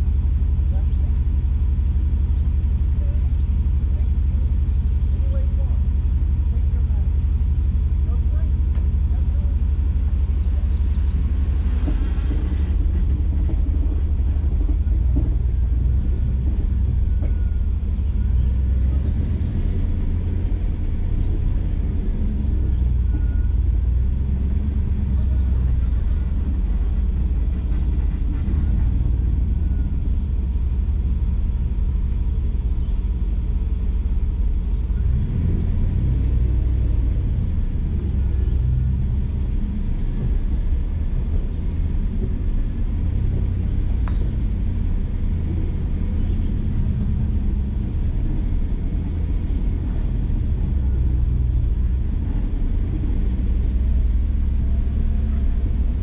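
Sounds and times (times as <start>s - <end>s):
engine and tyres rumbling on dirt: 0.0s - 56.0s.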